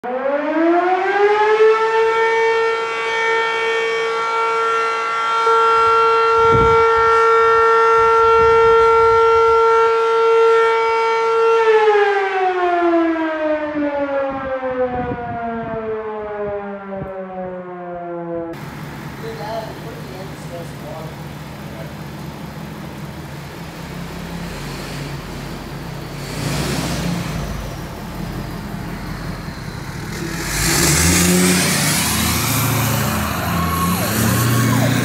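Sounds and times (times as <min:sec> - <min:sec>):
fire alarm siren wailing: 0:00.0 - 0:18.6, 0:27.5 - 0:35.0.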